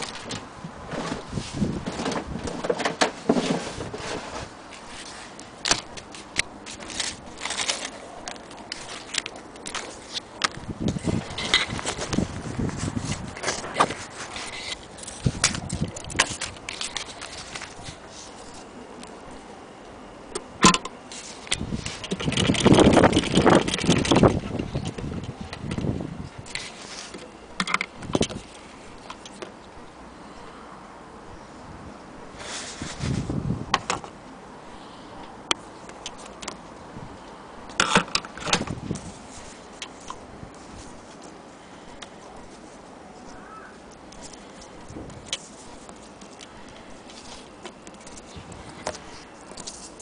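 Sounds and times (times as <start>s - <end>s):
paper rustling: 3.3s - 18.7s, 44.2s - 50.0s.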